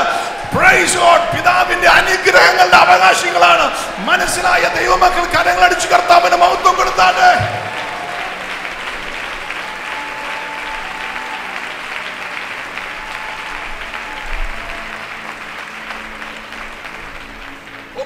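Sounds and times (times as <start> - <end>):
congregation clapping: 0.0 - 18.0.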